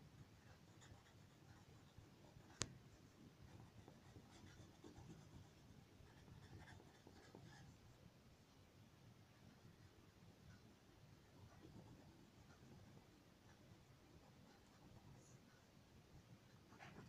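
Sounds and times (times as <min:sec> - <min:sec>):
crayon scratching on paper: 0:00.5 - 0:02.7, 0:03.5 - 0:07.7.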